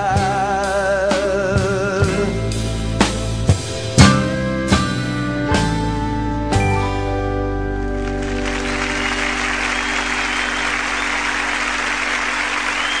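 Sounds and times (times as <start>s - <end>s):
audience applause: 8.0s - 13.0s
audience whistles: 8.4s - 13.0s.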